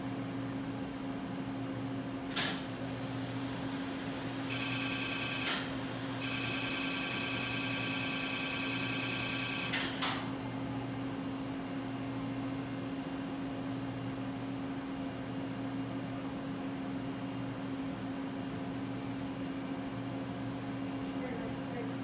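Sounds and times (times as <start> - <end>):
laser high-pitched buzz: 4.5 - 9.8
low equipment hum: 9.3 - 22.0.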